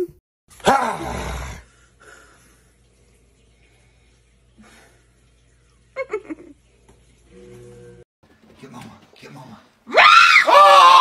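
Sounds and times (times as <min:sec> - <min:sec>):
laughter: 0:06.0 - 0:06.6
woman's startled cry: 0:09.9 - 0:11.0.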